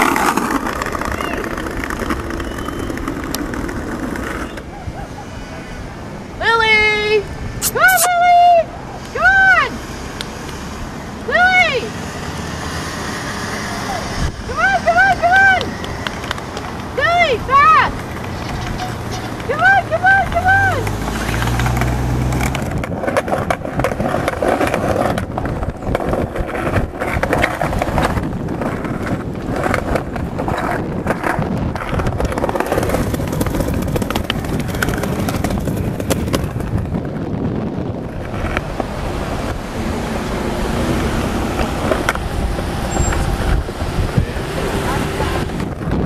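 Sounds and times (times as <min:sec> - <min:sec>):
skateboard wheels rolling: 0:00.0 - 0:06.3, 0:14.8 - 0:46.0
wheels clicking over joints: 0:17.7 - 0:37.2.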